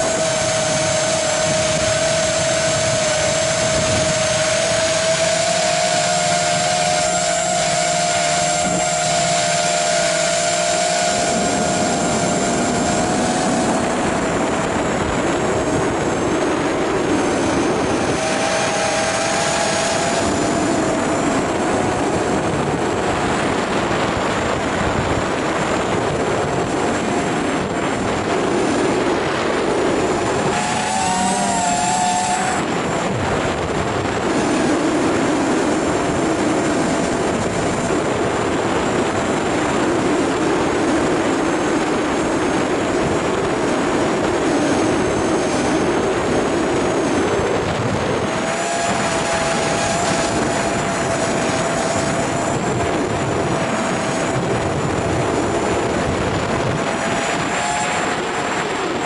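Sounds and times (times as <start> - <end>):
electric motor and propeller whining: 0.0 - 59.0
wind rushing over microphone: 0.0 - 59.0.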